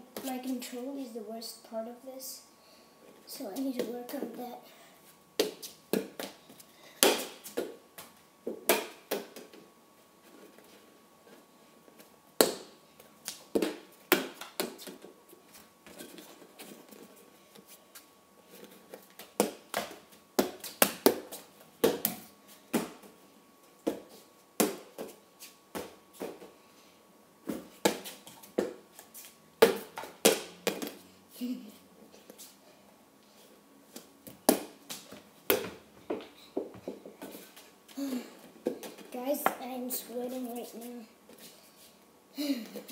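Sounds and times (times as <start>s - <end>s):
ball kicked and bouncing on stone: 34.3s - 37.3s.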